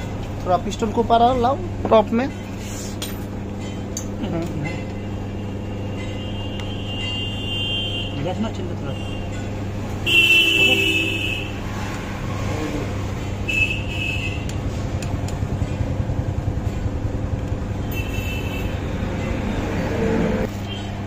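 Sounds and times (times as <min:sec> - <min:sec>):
passing traffic drone: 0:03.3 - 0:21.0
vehicle horns honking: 0:04.8 - 0:11.8, 0:13.3 - 0:14.8, 0:17.7 - 0:21.0.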